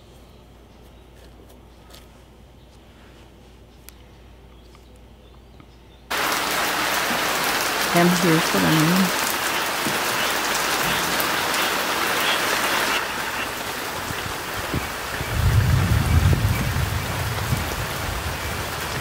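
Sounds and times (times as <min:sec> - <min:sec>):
rain falling on plants: 0:06.1 - 0:19.0.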